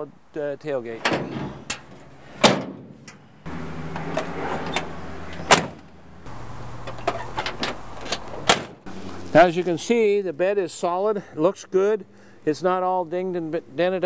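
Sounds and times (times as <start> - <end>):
metal tailgate and door bangs: 1.0 - 3.3, 3.9 - 5.9, 6.9 - 8.9
door latch clicks: 4.0 - 5.9.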